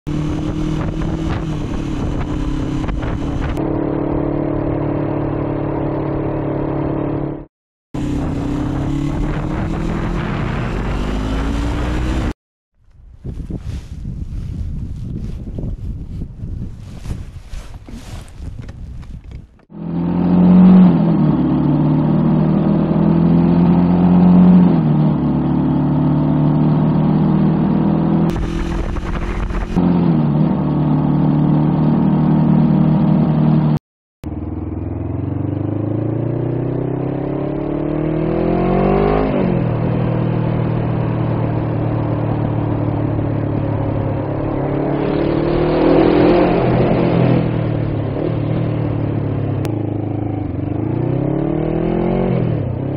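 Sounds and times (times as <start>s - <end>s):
motorcycle engine accelerating: 0.1s - 52.9s
rush of noise: 8.0s - 12.4s, 28.3s - 30.2s.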